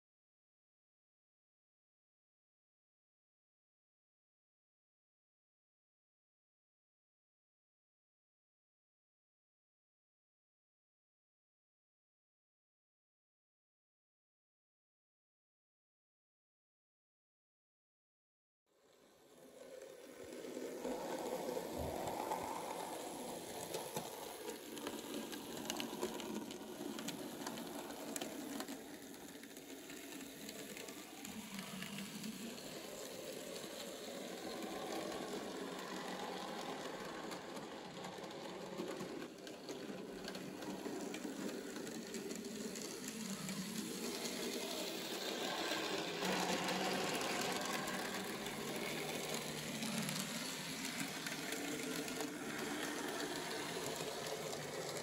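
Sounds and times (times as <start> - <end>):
model train wheels rattling on track: 19.0 - 55.0
small electric motor whirring: 19.6 - 55.0.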